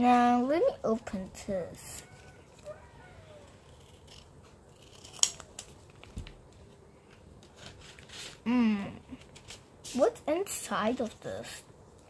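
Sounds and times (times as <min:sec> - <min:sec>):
scissors snipping paper: 0:03.4 - 0:05.7
paper rustling: 0:04.8 - 0:08.4.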